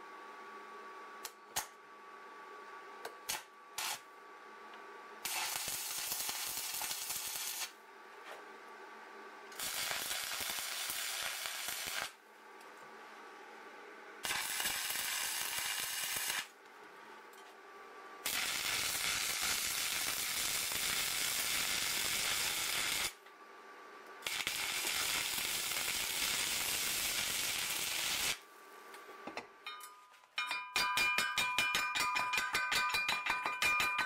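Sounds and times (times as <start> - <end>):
arc welding crackling sizzle: 3.2 - 4.1, 5.2 - 7.8, 9.5 - 12.2, 14.2 - 16.6, 18.2 - 23.2, 24.2 - 29.0
chipping hammer tapping metal: 29.6 - 34.0.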